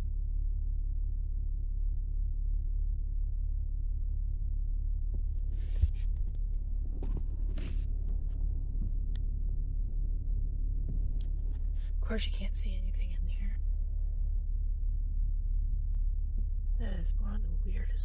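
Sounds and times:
low rumble: 0:00.0 - 0:18.0.

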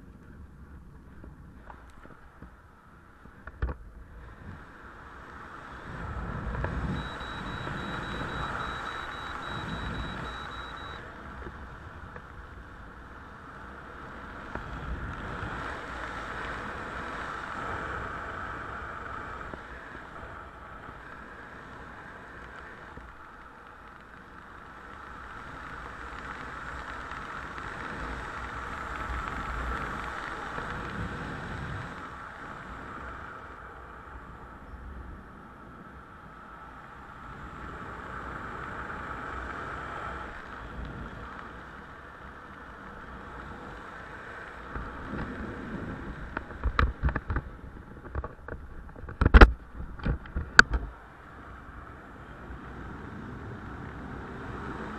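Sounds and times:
wind buffeting microphone: 0:00.0 - 0:23.3.

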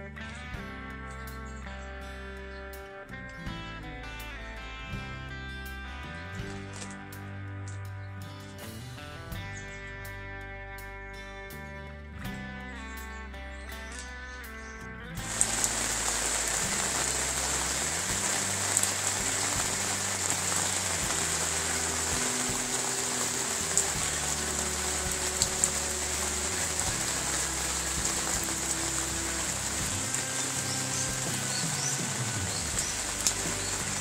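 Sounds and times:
even hiss: 0:15.2 - 0:34.0.

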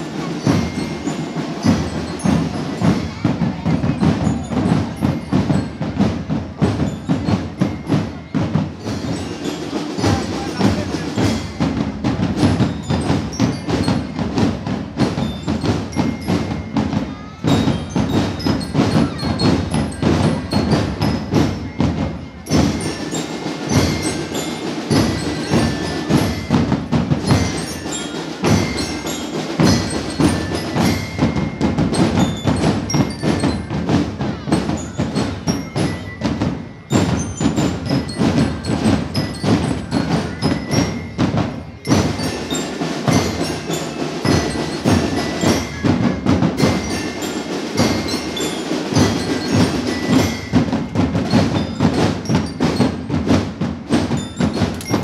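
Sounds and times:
marching band drums: 0:00.0 - 0:55.0.

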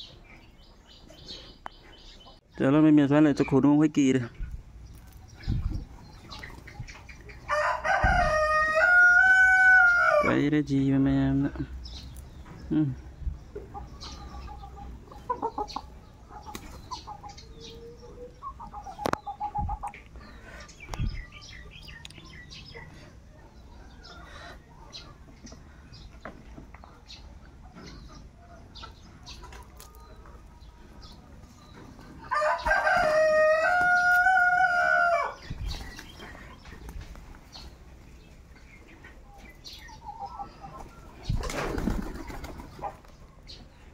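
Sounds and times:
chickens clucking: 0:00.0 - 0:43.9
rooster crowing: 0:07.5 - 0:10.3, 0:32.3 - 0:35.4
pigeon wings flapping: 0:41.4 - 0:42.8.

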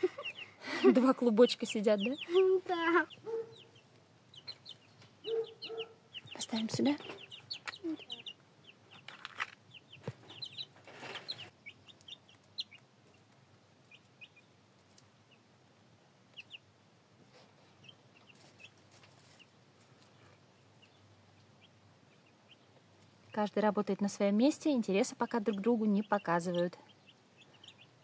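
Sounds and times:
chicks peeping: 0:00.0 - 0:28.0
soft rustles: 0:17.2 - 0:20.4.

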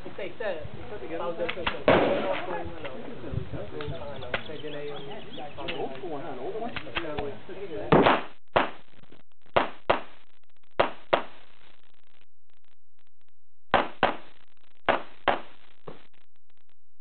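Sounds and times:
handgun shots: 0:07.9 - 0:08.8, 0:09.6 - 0:10.1, 0:10.8 - 0:11.3, 0:13.7 - 0:14.3, 0:14.9 - 0:15.5.

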